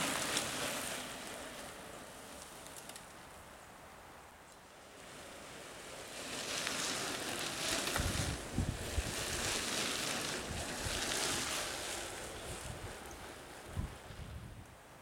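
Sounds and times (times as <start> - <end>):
bike tyres hissing over gritty trail: 0.0 - 15.0
wind buffeting microphone: 7.6 - 14.8.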